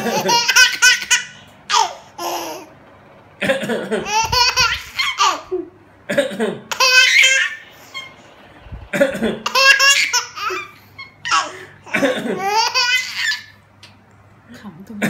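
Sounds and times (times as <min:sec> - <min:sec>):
baby laughing: 0:00.0 - 0:02.7, 0:03.7 - 0:08.2, 0:08.9 - 0:14.0
adult coughing: 0:03.4 - 0:04.1, 0:06.1 - 0:06.7, 0:08.9 - 0:09.5, 0:11.8 - 0:12.5.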